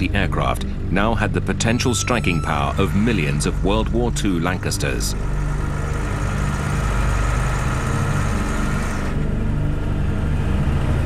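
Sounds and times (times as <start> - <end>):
vehicle engine running low: 0.0 - 11.0.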